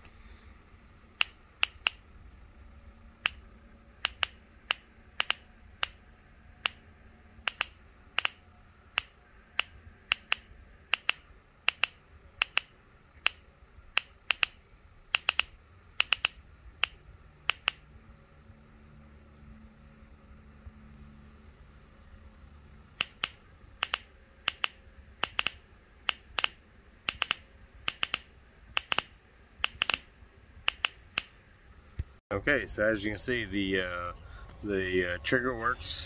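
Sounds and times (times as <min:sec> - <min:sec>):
ignition spark snapping: 0:01.2 - 0:02.0, 0:03.2 - 0:06.0, 0:06.6 - 0:17.9, 0:23.0 - 0:31.4.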